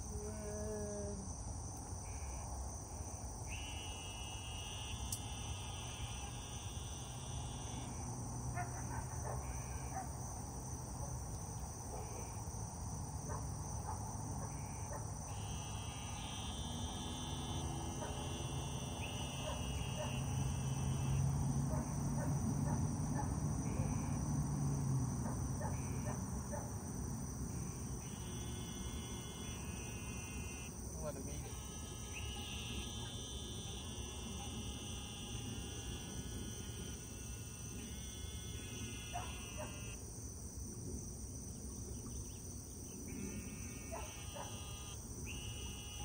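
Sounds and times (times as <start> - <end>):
pulsing insect trills: 0.0 - 46.0
high-pitched insect shrill: 2.1 - 8.2, 14.5 - 21.5, 27.5 - 40.0, 43.1 - 46.0.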